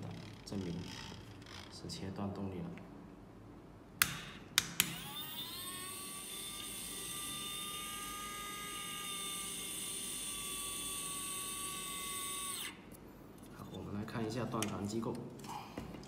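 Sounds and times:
small electric motor whine: 0:04.9 - 0:12.8.

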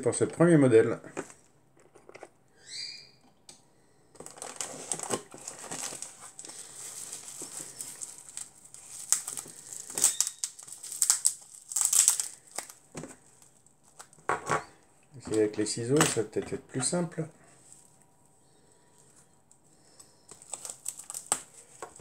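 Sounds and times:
bubble wrap crinkling: 0:04.2 - 0:14.3, 0:18.8 - 0:22.0.

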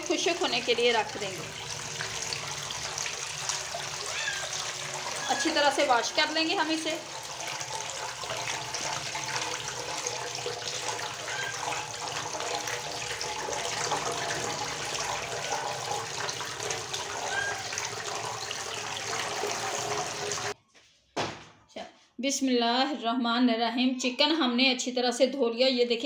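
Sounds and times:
tap water running: 0:00.0 - 0:20.6.

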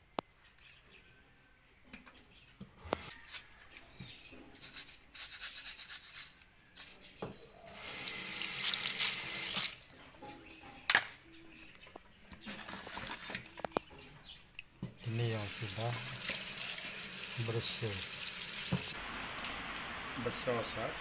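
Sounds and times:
running water: 0:07.7 - 0:10.0, 0:15.0 - 0:21.0.

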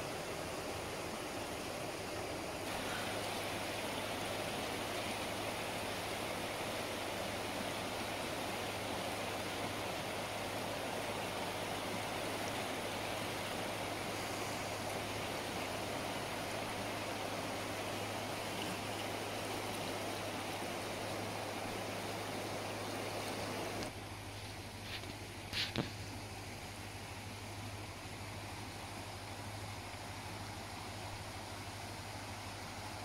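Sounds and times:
river rushing over rocks: 0:00.0 - 0:24.0.

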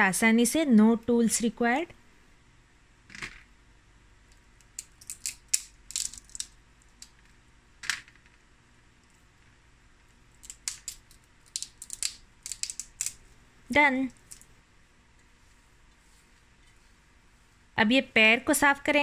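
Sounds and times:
crab shell cracking: 0:04.3 - 0:07.3, 0:10.3 - 0:13.3.

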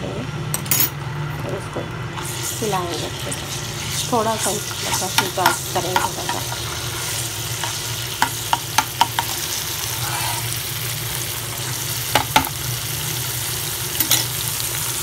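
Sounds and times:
paste sizzling in hot oil: 0:02.1 - 0:15.0
spatula knocking against pan: 0:05.1 - 0:06.5, 0:07.6 - 0:09.3, 0:12.1 - 0:12.5.

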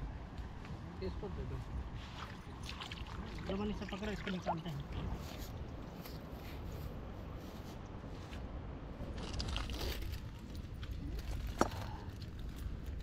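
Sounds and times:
handling scraping and crunching: 0:07.7 - 0:13.0.

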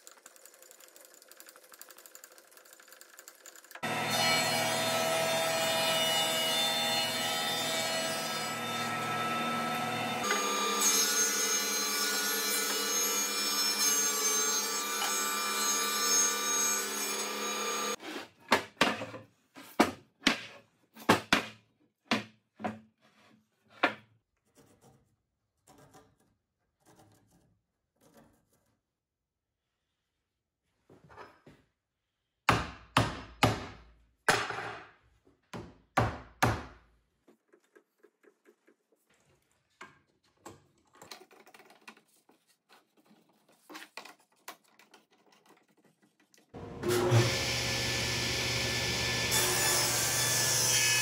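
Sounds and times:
thickness planer running: 0:03.8 - 0:13.5, 0:46.6 - 0:51.0.

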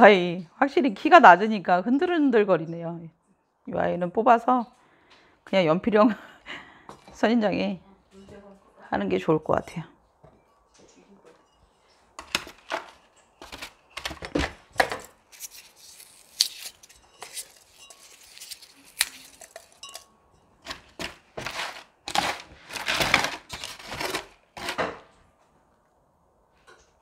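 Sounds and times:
trowel scraping gritty soil: 0:15.3 - 0:20.0, 0:20.7 - 0:24.8.

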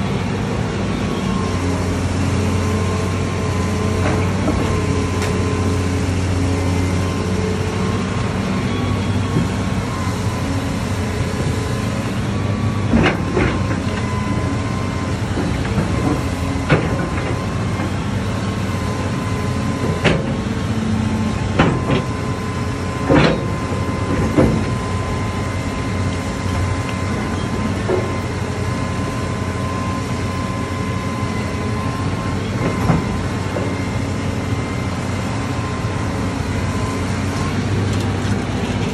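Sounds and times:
excavator diesel engine whining: 0:00.0 - 0:38.9.

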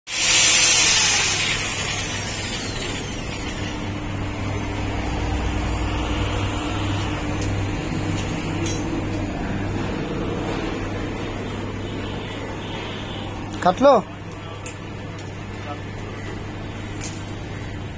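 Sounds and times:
power tool whirring down: 0:00.1 - 0:06.0
low mechanical hum: 0:00.3 - 0:17.9.

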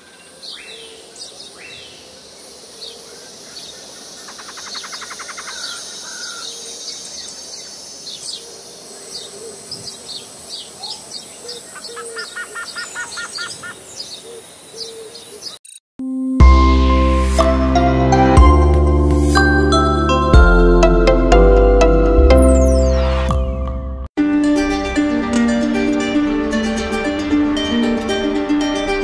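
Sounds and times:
high background hiss: 0:00.0 - 0:11.9
birds chirping: 0:00.0 - 0:15.7.

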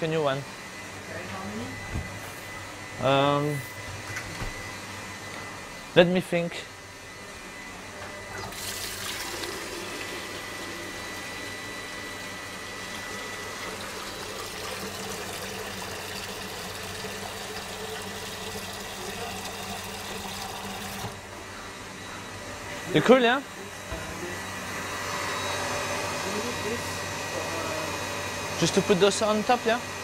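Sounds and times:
water running from tap: 0:08.4 - 0:11.0, 0:12.8 - 0:21.2.

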